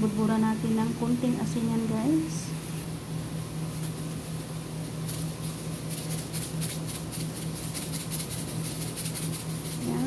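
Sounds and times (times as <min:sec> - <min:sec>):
steady low hum: 0:00.0 - 0:10.0
salt shaker rattling: 0:04.8 - 0:10.0.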